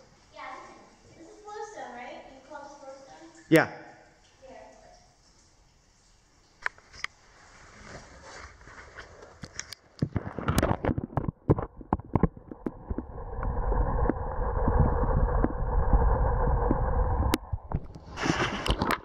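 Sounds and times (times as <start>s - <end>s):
rubbing rumble: 7.4s - 19.0s.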